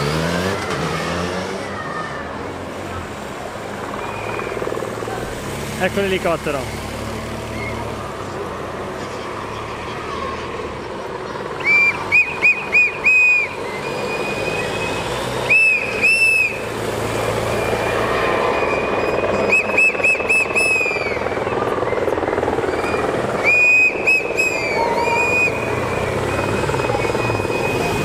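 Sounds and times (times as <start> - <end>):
helicopter flying: 0.0 - 28.0
sharp high whistle blasts: 22.8 - 25.8.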